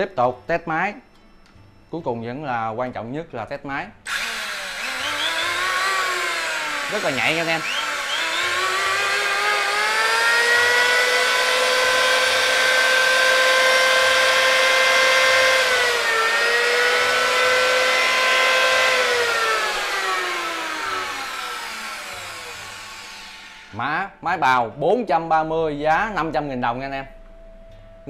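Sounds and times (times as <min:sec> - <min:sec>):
electric hand planer whining: 0:04.1 - 0:23.8.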